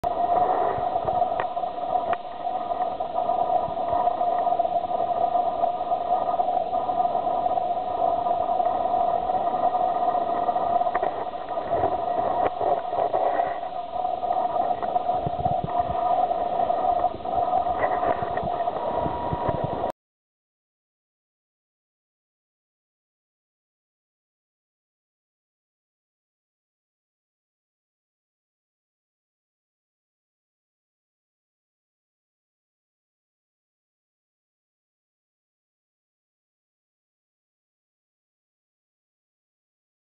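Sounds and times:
noisy hiss: 0.0s - 19.9s.

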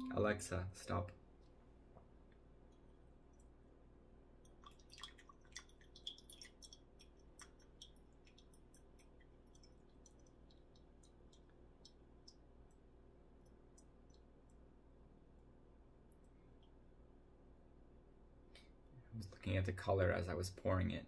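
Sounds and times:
tea dripping into cup: 4.4s - 14.7s.

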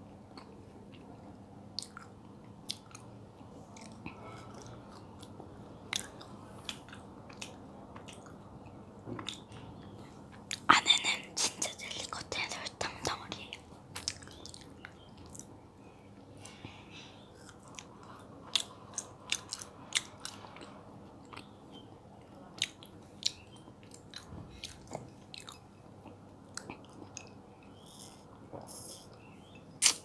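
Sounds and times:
chewing soft jelly: 0.1s - 10.7s, 11.6s - 30.0s
wet mouth clicks and smacks: 1.8s - 2.1s, 29.8s - 30.0s.

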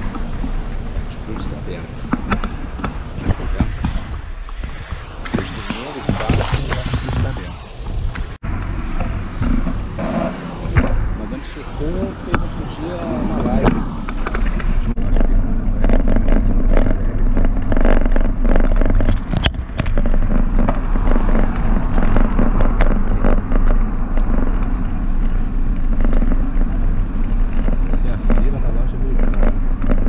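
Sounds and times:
wind and road rumble: 0.0s - 30.0s
bicycle clicks and rattles: 14.1s - 28.6s.

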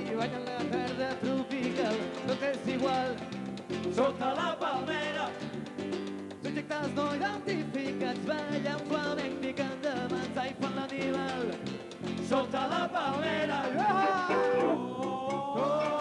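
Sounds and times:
person singing: 0.0s - 3.2s, 6.4s - 16.0s
guitar chords: 0.0s - 16.0s
latin percussion beat: 0.0s - 16.0s.

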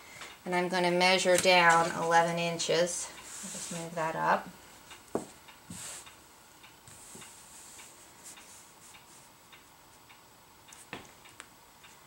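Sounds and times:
soft ticks: 4.8s - 12.0s
ruler sliding over cutting mat: 5.7s - 6.1s.

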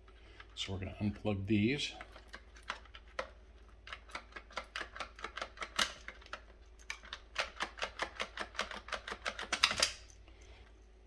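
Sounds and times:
plastic clicks and rattles: 2.0s - 10.1s.

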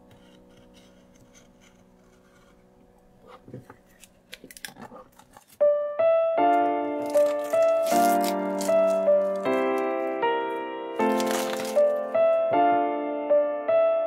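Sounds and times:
knife cutting plastic: 3.2s - 5.6s, 6.6s - 10.2s, 11.0s - 12.2s
plastic wrapping crackling: 3.8s - 5.6s, 6.5s - 12.5s.

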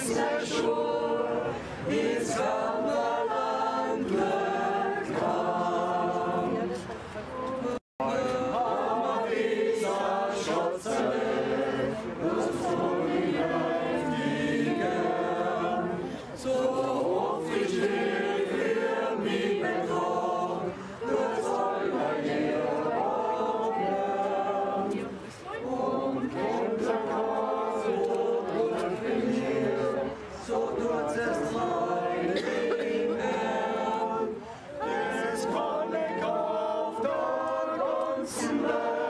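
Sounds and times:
group singing a hymn: 0.0s - 39.0s.

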